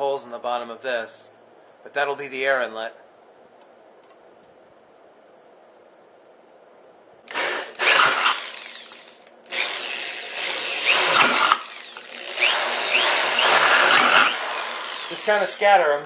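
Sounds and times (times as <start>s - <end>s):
cordless drill boring through metal: 7.3s - 15.9s.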